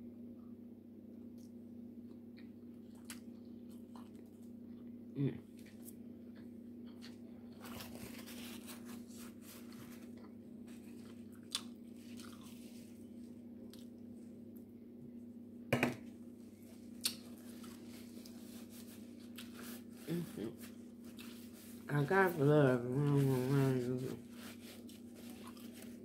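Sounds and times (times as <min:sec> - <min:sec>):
steady low hum: 0:00.0 - 0:26.0
person chewing: 0:01.3 - 0:14.7, 0:16.6 - 0:21.9, 0:24.2 - 0:26.0.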